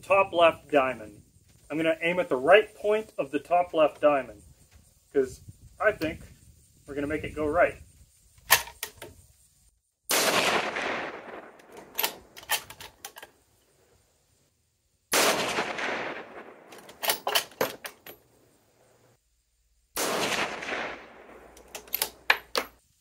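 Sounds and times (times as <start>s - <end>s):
sharp clicks and knocks: 8.4s - 9.2s, 11.6s - 13.4s, 16.7s - 18.2s, 21.5s - 22.8s
rifle shots with echo: 10.1s - 12.4s, 15.1s - 17.3s, 20.0s - 22.3s.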